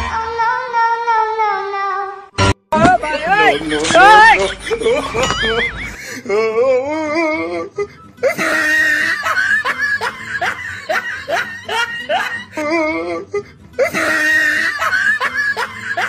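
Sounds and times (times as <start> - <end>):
canned laughter: 3.1 - 6.2, 7.8 - 16.0.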